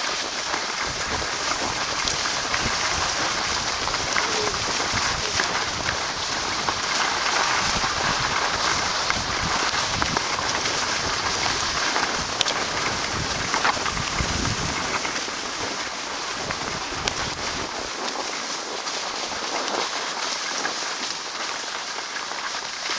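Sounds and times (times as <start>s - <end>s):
skis sliding over snow: 0.0s - 22.9s
wind buffeting microphone: 0.7s - 18.0s.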